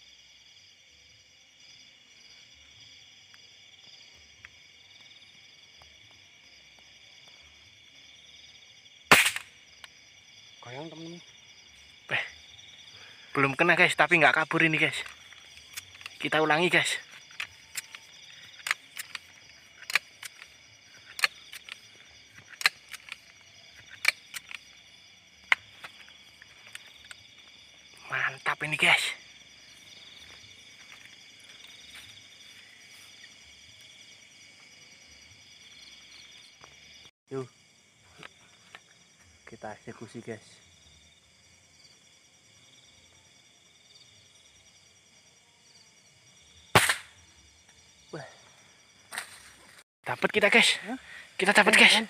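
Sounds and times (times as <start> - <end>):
crickets trilling: 0.0 - 52.0
night insects chirring: 0.0 - 52.0
sharp single clicks: 9.1 - 10.0, 17.3 - 21.8, 22.4 - 24.7, 46.7 - 47.2.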